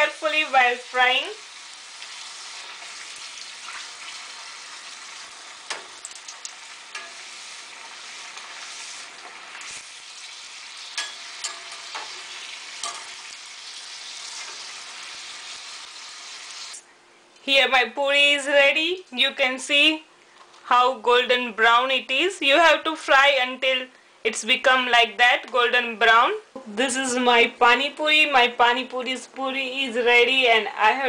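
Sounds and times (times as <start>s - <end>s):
food sizzling in hot oil: 0.0s - 16.8s
metal spoon clinking on saucepan: 6.9s - 7.2s, 10.9s - 12.2s, 12.8s - 13.2s.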